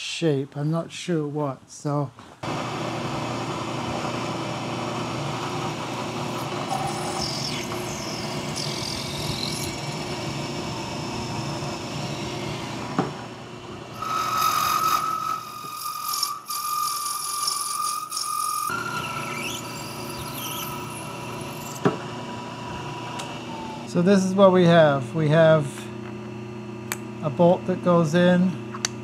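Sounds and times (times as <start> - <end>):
steady high whine: 2.4 - 14.0
machine tools running: 2.4 - 15.2
high gliding squeaks: 18.9 - 21.8.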